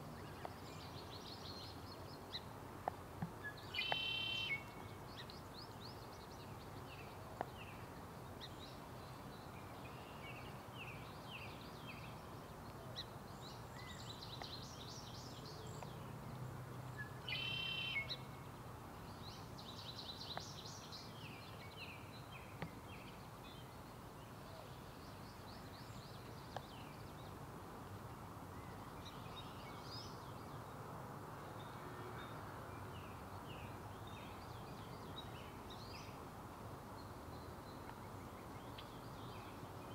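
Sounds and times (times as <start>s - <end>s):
steady background hiss: 0.0s - 39.9s.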